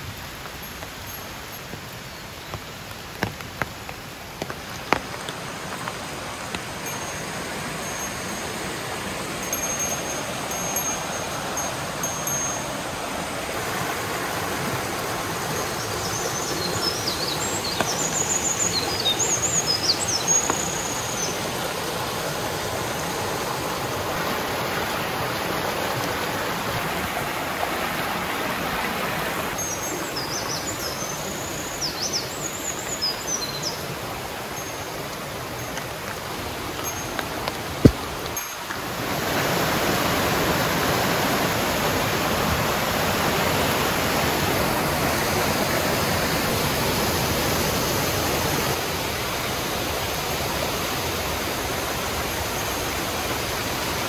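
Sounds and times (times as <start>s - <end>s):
stream rushing over rocks: 0.0s - 54.0s
small birds chirping: 15.6s - 21.6s, 29.6s - 33.9s.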